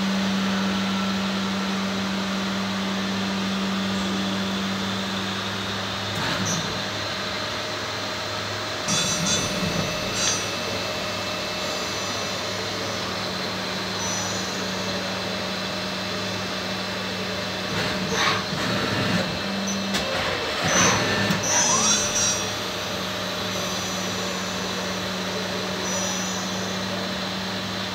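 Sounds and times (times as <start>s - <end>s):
lathe machine hum: 0.0s - 27.9s
motor whine and clatter: 0.0s - 27.9s.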